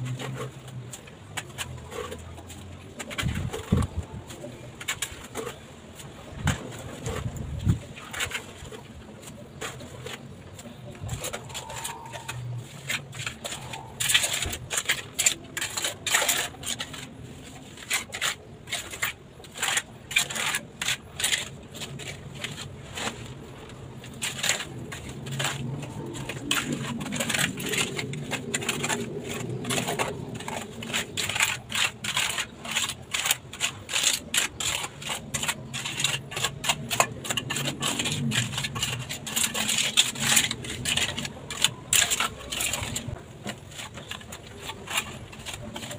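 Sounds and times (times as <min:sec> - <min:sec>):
trowel scraping and clicking on tile: 0:08.0 - 0:45.9.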